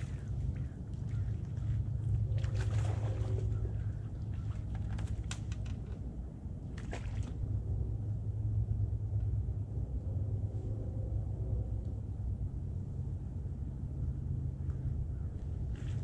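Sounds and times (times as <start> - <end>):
fish splashing in water: 0.0 - 5.3, 6.7 - 7.4
steady low rumble: 0.0 - 16.0.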